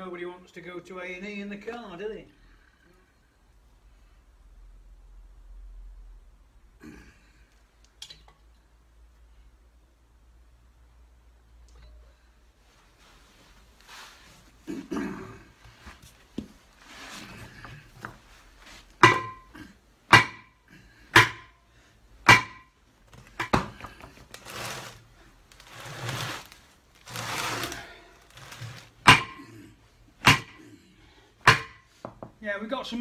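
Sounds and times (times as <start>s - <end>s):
sledgehammer striking metal: 19.0s - 19.5s, 20.1s - 20.5s, 21.1s - 21.6s, 22.2s - 22.7s, 29.1s - 29.5s.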